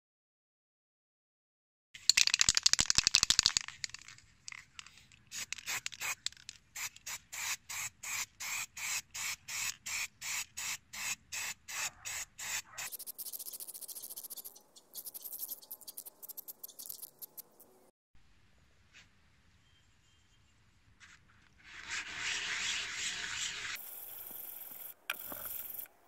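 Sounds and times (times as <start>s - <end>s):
spray can rattle: 2.0s - 17.6s, 23.8s - 25.9s
spray paint can hissing: 2.2s - 17.7s, 22.1s - 26.0s.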